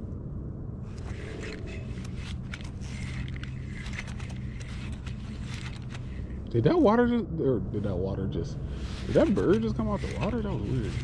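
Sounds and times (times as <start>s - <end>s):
low rumble: 0.0s - 9.0s
fishing reel clicking: 1.0s - 6.4s.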